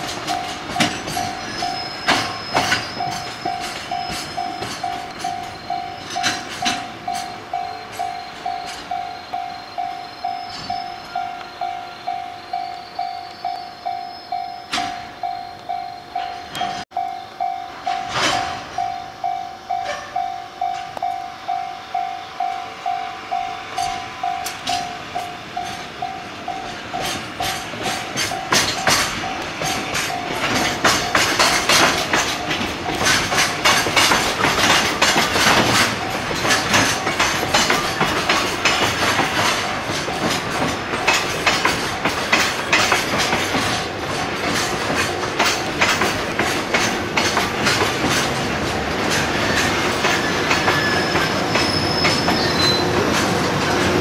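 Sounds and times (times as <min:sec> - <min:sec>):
wheels clicking over rail joints: 0:00.0 - 0:21.7, 0:23.3 - 0:54.0
level-crossing bell ringing: 0:00.0 - 0:33.7.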